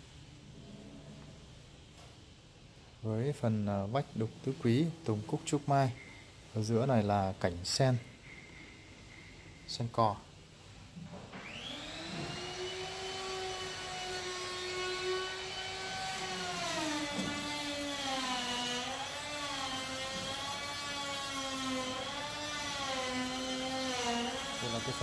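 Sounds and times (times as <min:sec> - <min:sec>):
power tool motor whining: 0:11.4 - 0:25.0.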